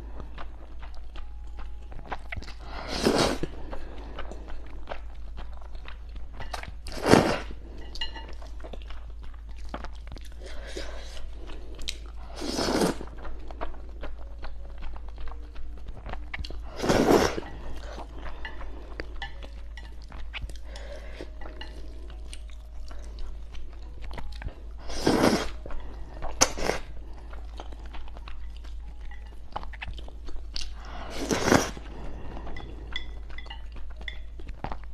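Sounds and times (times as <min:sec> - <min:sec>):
wet chewing: 0:00.0 - 0:34.9
slurping noodles: 0:02.6 - 0:04.4, 0:06.9 - 0:07.6, 0:10.4 - 0:13.5, 0:16.6 - 0:18.8, 0:24.8 - 0:27.0, 0:30.8 - 0:32.5.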